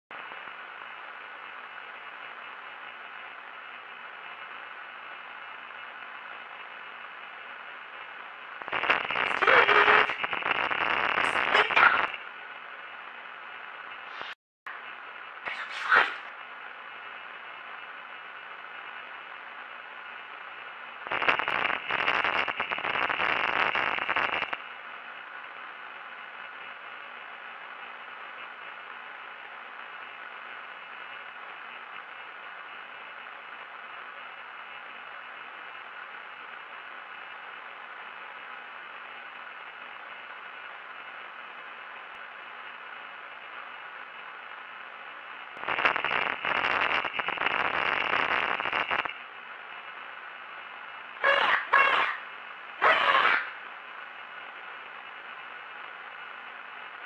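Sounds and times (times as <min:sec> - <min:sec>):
electronic static hiss: 0:00.1 - 0:57.0
burst of noise: 0:08.6 - 0:12.2, 0:14.0 - 0:14.4, 0:15.4 - 0:16.3, 0:45.6 - 0:49.2.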